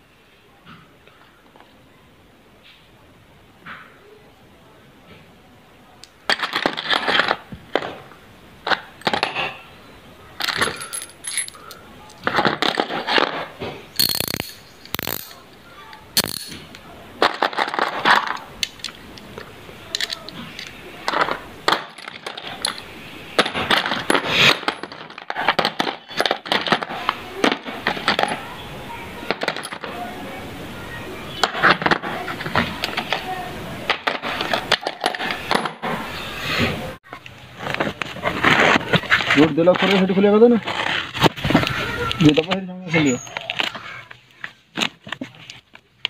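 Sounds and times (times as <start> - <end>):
small metal pieces clinking: 10.4 - 13.0, 13.9 - 15.6, 16.2 - 19.0, 19.9 - 27.0, 29.3 - 29.9.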